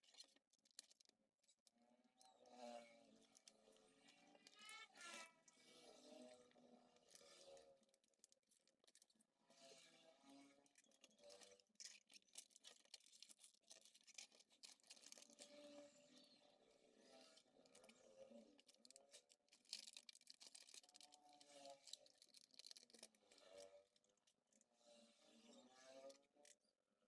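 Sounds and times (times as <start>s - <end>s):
plastic film crackling as peeled: 12.0s - 15.6s, 18.6s - 23.6s.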